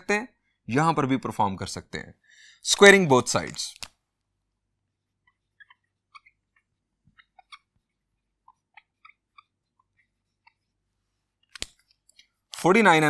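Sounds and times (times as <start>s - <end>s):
marker squeaking on whiteboard: 5.2s - 10.7s.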